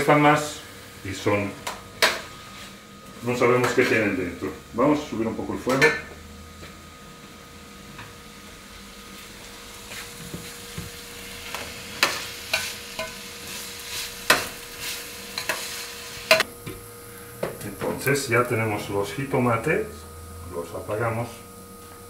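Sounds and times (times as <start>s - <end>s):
vegetables sizzling softly: 8.1s - 22.0s.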